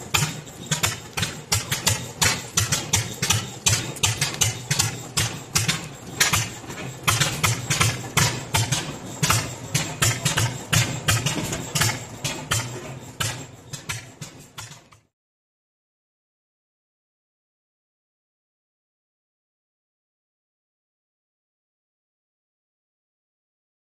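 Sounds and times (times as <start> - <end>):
low engine rumble: 0.0 - 14.6
stationary engines exhaust popping: 0.0 - 15.1.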